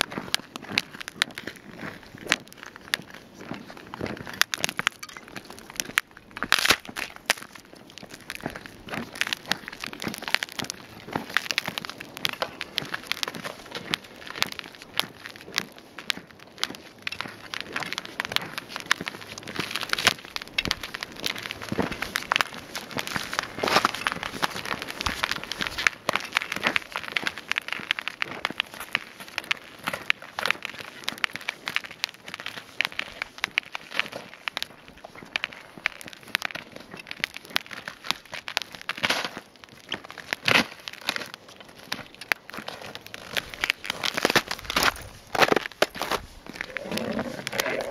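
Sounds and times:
footsteps crunching on ice and snow: 0:00.0 - 0:47.9
trekking poles clicking on ice: 0:00.0 - 0:47.9.

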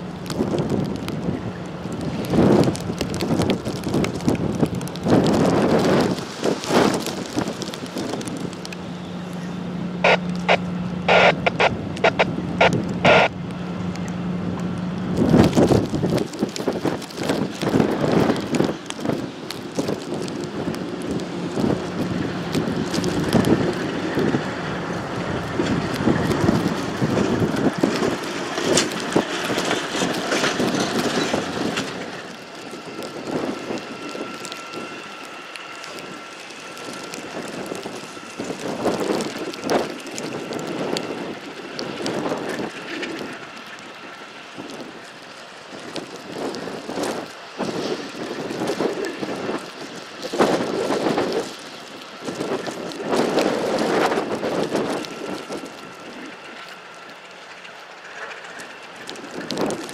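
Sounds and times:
diesel locomotive running: 0:00.0 - 0:59.9
rain: 0:00.0 - 0:59.9
wind gusting on microphone: 0:00.0 - 0:59.9
faint steady whine: 0:08.0 - 0:15.2.

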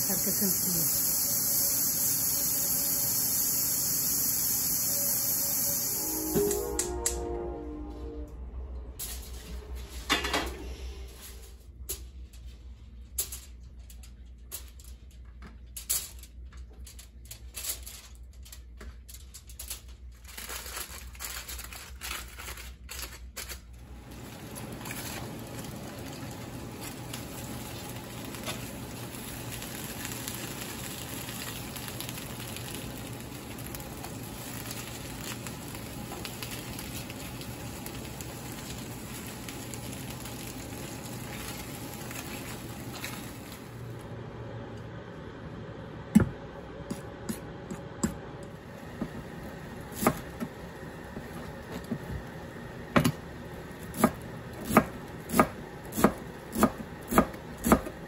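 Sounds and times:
vegetables roasting hiss: 0:00.0 - 0:06.7, 0:23.9 - 0:44.0
aluminium foil crinkling: 0:11.8 - 0:44.0.

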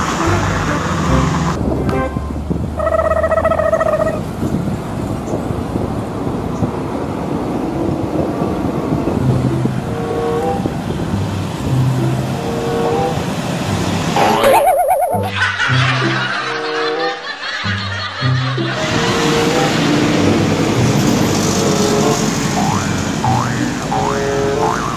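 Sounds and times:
road traffic passing: 0:00.0 - 0:24.9
horn-like tone: 0:01.8 - 0:04.2, 0:09.8 - 0:10.8, 0:12.0 - 0:13.3, 0:18.8 - 0:20.4, 0:21.5 - 0:22.8.

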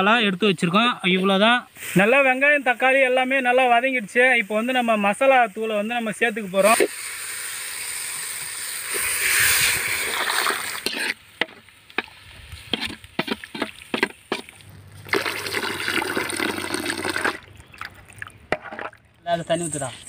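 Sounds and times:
masala sizzling in a pan: 0:01.2 - 0:14.6
water pouring into gravy: 0:06.8 - 0:10.9, 0:13.3 - 0:19.2
steel ladle clinking and scraping: 0:10.8 - 0:12.1.

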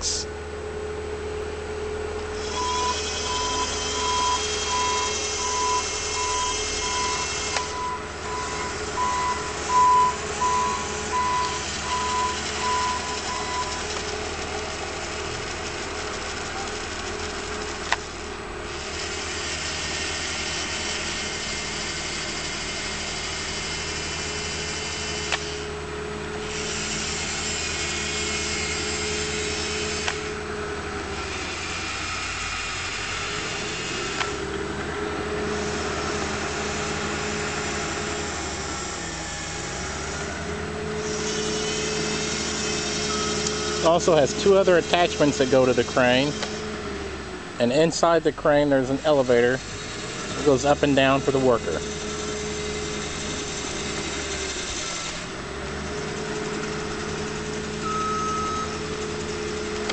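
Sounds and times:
electric motor whirring: 0:02.2 - 0:59.9
electronic beep: 0:02.5 - 0:13.9, 0:43.1 - 0:43.8, 0:57.8 - 0:58.8
motor click: 0:30.0 - 0:30.3, 0:34.1 - 0:34.6.

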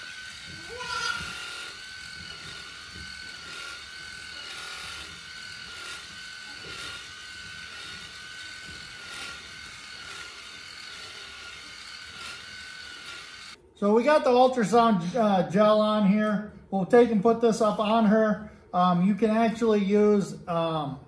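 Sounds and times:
electric clippers whining: 0:00.0 - 0:13.6.

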